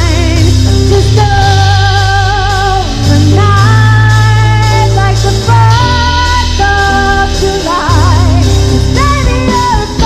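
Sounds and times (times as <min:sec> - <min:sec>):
drum kit: 0:00.0 - 0:10.0
electric bass line: 0:00.0 - 0:10.0
woman singing pop ballad: 0:00.0 - 0:10.0.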